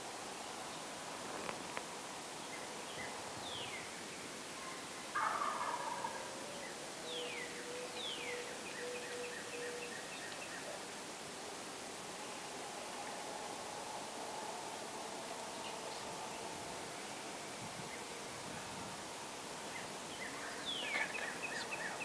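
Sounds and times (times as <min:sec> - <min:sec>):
turkey gobbling: 0:05.2 - 0:06.3.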